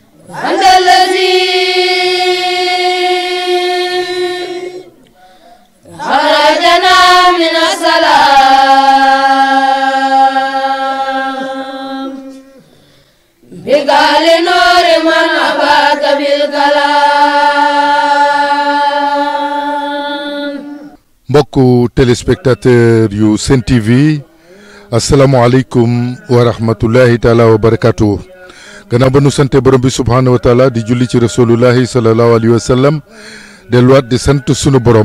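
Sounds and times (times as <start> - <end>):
boys chanting together: 0.2 - 4.9, 5.8 - 12.4, 13.4 - 21.0.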